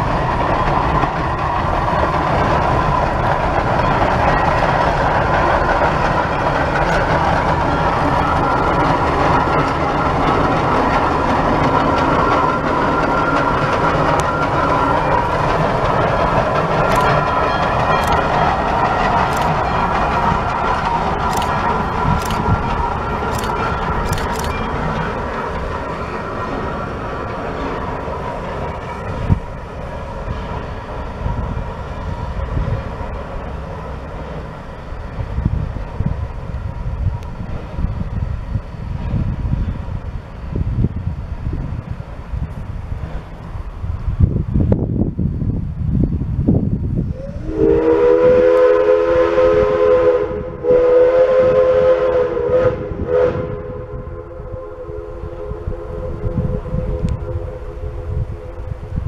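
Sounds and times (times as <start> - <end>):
train cars clattering on rails: 0.0 - 36.2
steam locomotive exhaust chuffing: 0.0 - 44.0, 47.0 - 59.0
wind buffeting microphone: 0.0 - 59.0.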